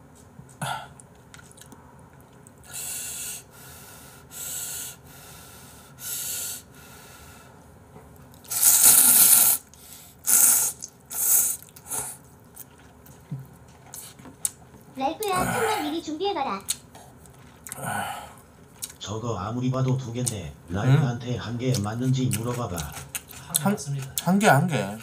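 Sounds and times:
puffs of breath blowing: 0:02.7 - 0:07.6, 0:08.5 - 0:12.2
slurping noodles: 0:08.4 - 0:09.7, 0:10.3 - 0:12.2.

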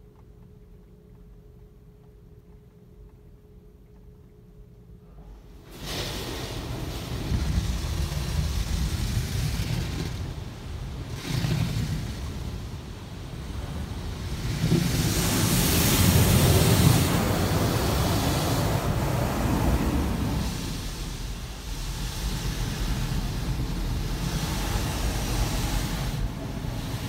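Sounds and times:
low rumble: 0:05.0 - 0:27.0
water spraying on windshield: 0:05.6 - 0:27.0.

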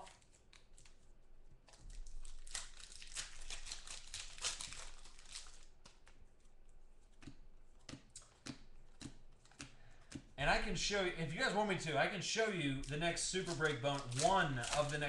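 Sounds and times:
plastic wrapper tearing and crinkling: 0:00.0 - 0:06.4, 0:12.8 - 0:15.0.

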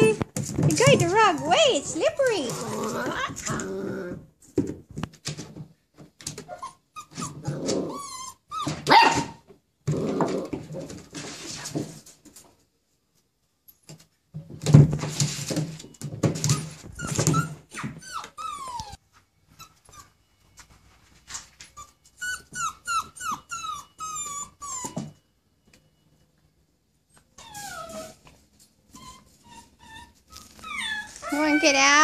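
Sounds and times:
puppy whining: 0:00.0 - 0:04.3, 0:06.3 - 0:09.4, 0:16.4 - 0:20.5, 0:21.6 - 0:25.3, 0:27.1 - 0:32.0
puppies growling and yapping: 0:00.7 - 0:04.4, 0:06.4 - 0:09.0, 0:09.8 - 0:11.1, 0:16.4 - 0:19.0, 0:21.8 - 0:25.1, 0:27.2 - 0:32.0.

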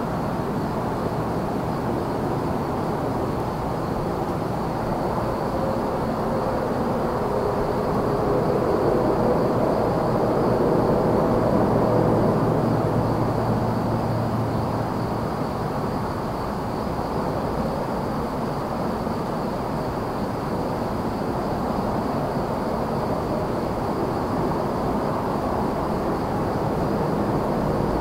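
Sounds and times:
crickets trilling: 0:00.0 - 0:28.0
distant highway traffic rumble: 0:00.0 - 0:28.0.

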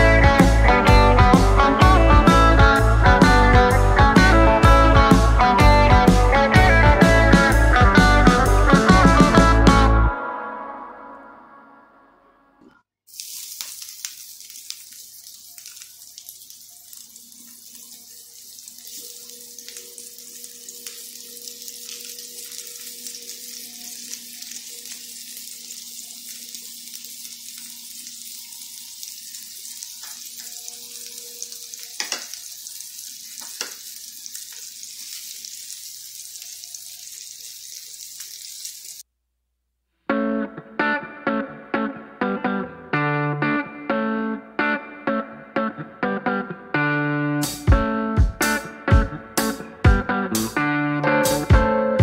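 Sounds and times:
oil spitting and popping: 0:13.1 - 0:28.4, 0:31.6 - 0:38.8
fish frying in hot oil: 0:13.1 - 0:39.0.

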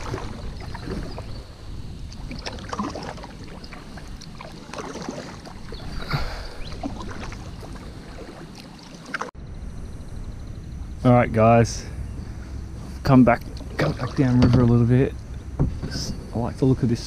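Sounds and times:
paddle strokes splashing: 0:00.0 - 0:09.4, 0:12.8 - 0:14.8
knocks against canoe hull: 0:15.6 - 0:16.2.

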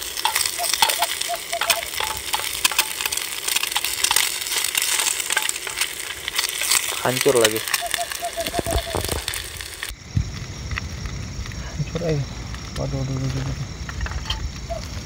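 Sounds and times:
utensil scraping a pan: 0:00.0 - 0:09.4
egg sizzling in oil: 0:00.0 - 0:10.6.

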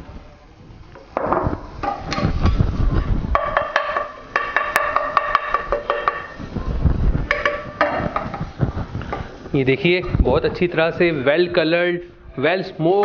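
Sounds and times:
spatula scraping frying pan: 0:07.2 - 0:09.5.

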